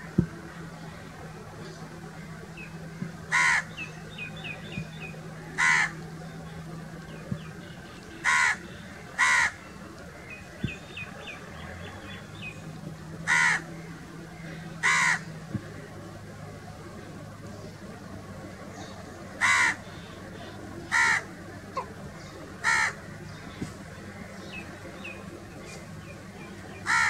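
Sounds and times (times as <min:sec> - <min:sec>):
crow cawing: 0:03.3 - 0:03.7, 0:05.6 - 0:05.9, 0:08.2 - 0:08.6, 0:09.2 - 0:09.6, 0:13.3 - 0:13.7, 0:14.8 - 0:15.2, 0:19.4 - 0:19.8, 0:20.9 - 0:21.2, 0:22.6 - 0:23.0.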